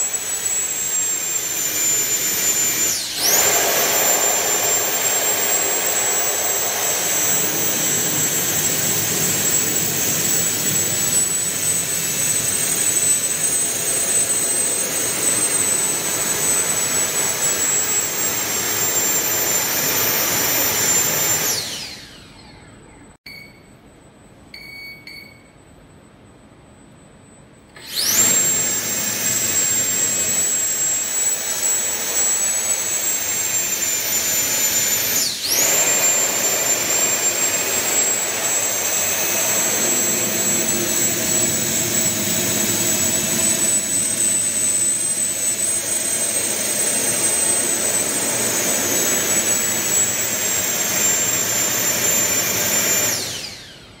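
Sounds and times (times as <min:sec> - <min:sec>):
ducted fan thrusters whining: 0:00.0 - 0:23.0, 0:27.8 - 0:54.0.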